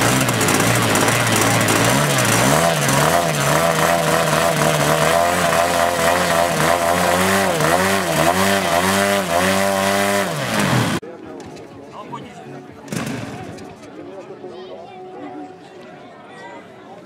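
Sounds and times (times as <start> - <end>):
model airplane engine revving: 0.0 - 11.0.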